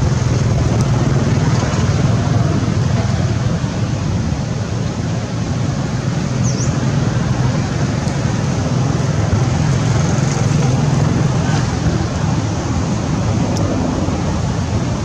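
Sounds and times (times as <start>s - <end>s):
faint high chirp: 6.4s - 6.8s.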